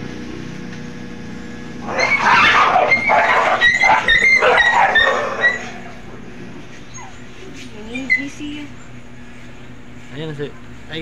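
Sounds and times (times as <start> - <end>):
dogs snarling and yelping: 1.8 - 6.1, 6.8 - 8.3.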